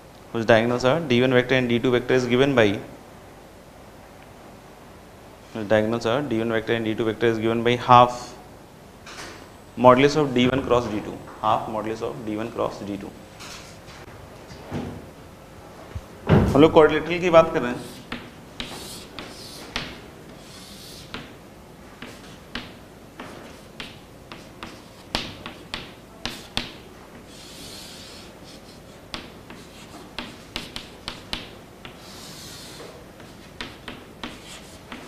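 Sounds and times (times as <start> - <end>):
chalk scratching on chalkboard: 17.6 - 21.3, 22.0 - 35.0
chalk tapping on chalkboard: 17.7 - 21.4, 22.0 - 35.0.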